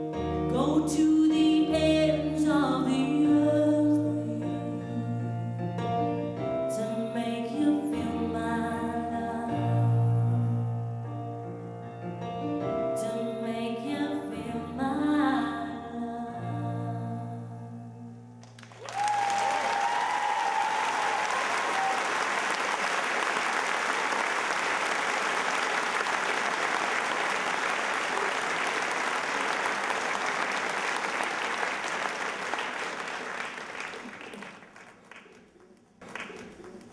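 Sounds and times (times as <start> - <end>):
audience applause: 18.4 - 36.9.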